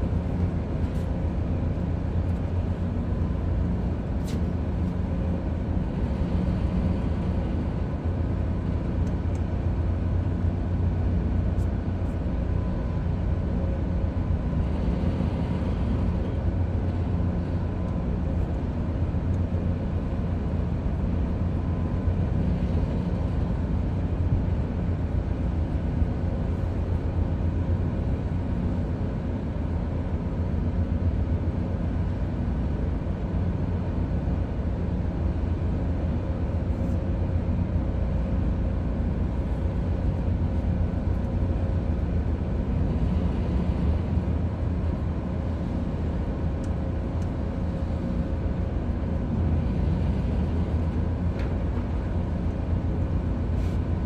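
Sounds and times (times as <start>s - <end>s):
ship machinery rumbling: 37.3s - 54.0s.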